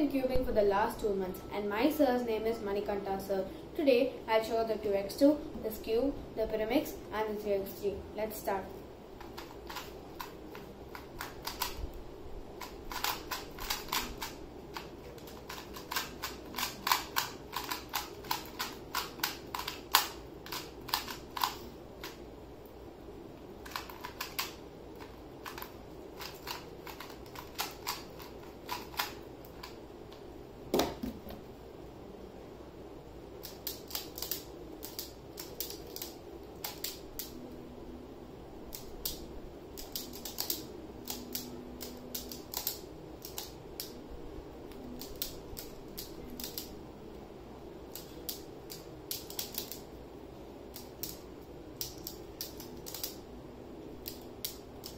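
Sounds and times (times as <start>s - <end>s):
puzzle cube clicking: 9.2s - 11.8s, 12.6s - 22.2s, 23.6s - 29.8s, 33.4s - 37.4s, 38.7s - 44.0s, 44.7s - 46.7s, 47.9s - 49.8s, 51.8s - 53.2s.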